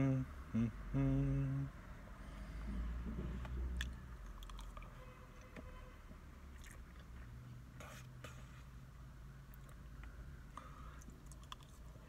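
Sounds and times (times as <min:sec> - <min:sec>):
close-up chewing food: 0:03.8 - 0:04.9, 0:06.5 - 0:07.3, 0:10.9 - 0:12.0.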